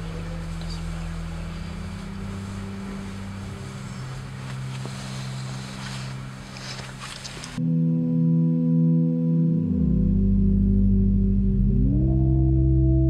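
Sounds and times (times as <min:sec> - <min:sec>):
car engine and road noise: 0:00.0 - 0:07.6
ambient music with ringing tones: 0:00.0 - 0:13.0.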